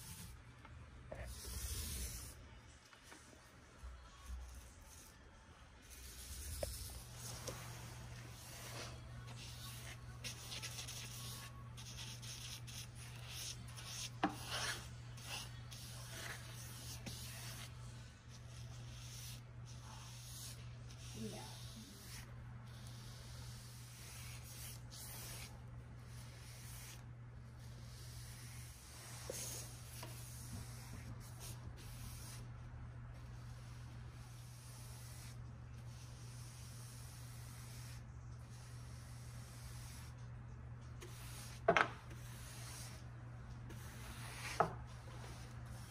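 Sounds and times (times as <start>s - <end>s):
paintbrush bristles swishing: 5.8s - 17.8s
paintbrush strokes on wood: 5.8s - 32.5s, 41.0s - 45.9s.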